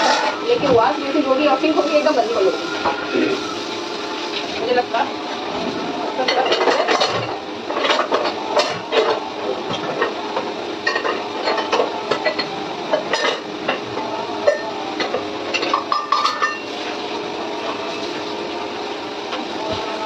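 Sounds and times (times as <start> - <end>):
running tap water: 0.0 - 20.0
utensils clinking together: 6.2 - 16.7.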